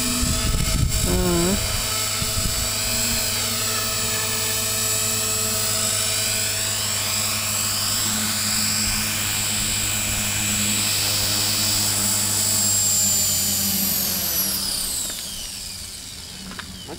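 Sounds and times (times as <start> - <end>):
rotor low buzz: 0.0 - 13.2
electric motor high whine: 0.0 - 16.9.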